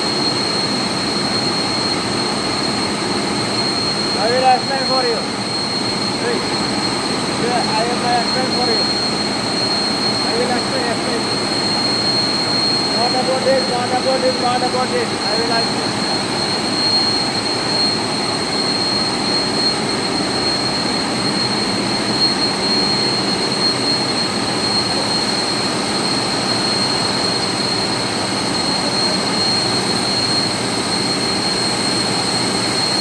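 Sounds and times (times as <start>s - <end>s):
compressor running: 0.0s - 33.0s
high-pitched whine: 0.0s - 33.0s.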